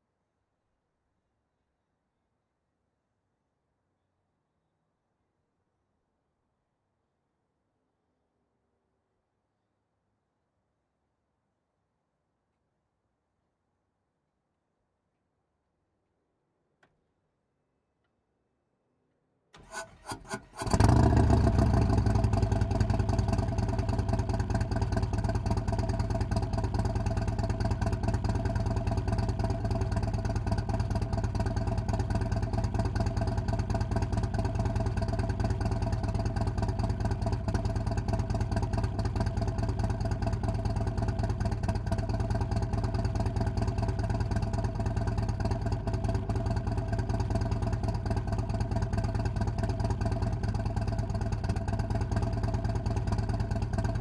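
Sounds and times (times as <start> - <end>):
motorcycle engine idling: 19.7 - 54.0.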